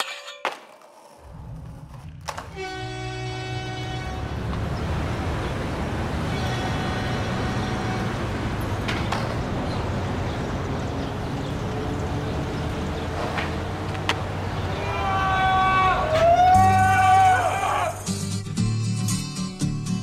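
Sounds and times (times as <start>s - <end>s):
traffic rumble: 1.0s - 18.0s.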